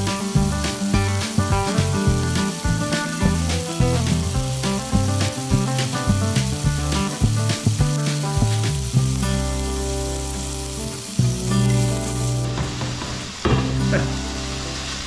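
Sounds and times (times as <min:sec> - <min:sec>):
background music with steady beat: 0:00.0 - 0:10.0
chicken sizzling in a frying pan: 0:00.0 - 0:15.0.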